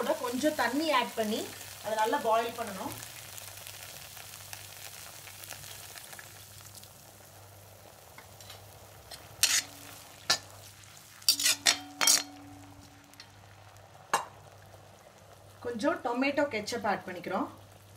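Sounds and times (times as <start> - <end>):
onions sizzling: 0.0 - 17.9
skimmer scraping and clinking pan: 8.3 - 10.5, 11.3 - 13.4.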